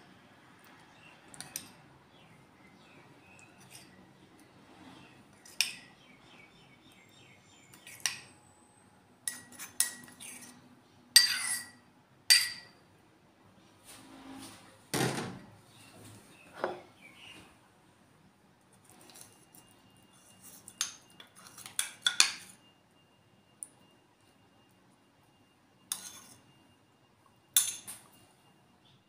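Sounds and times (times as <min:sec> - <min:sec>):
spoon clinking on ceramic bowl: 0:11.2 - 0:12.8, 0:20.7 - 0:22.5, 0:27.6 - 0:28.0.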